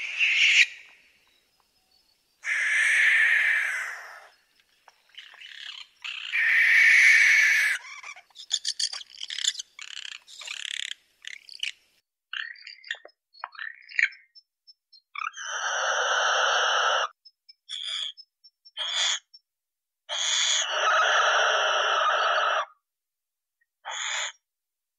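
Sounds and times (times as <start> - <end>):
owl screeching: 0.0 - 0.9, 2.4 - 4.4, 5.4 - 10.0, 15.2 - 18.2, 18.8 - 19.3, 20.1 - 22.8, 23.8 - 24.4.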